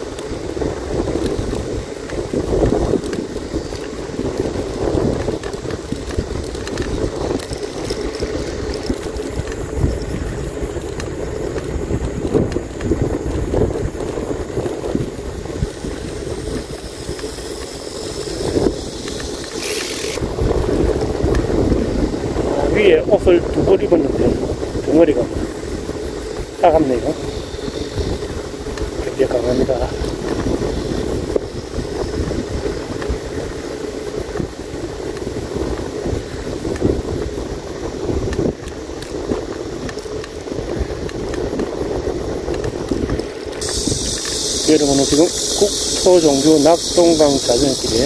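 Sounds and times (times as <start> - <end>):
bicycle rolling: 0.0 - 48.0
wind buffeting microphone: 0.0 - 48.0
short hiss: 18.6 - 20.2, 43.5 - 48.0.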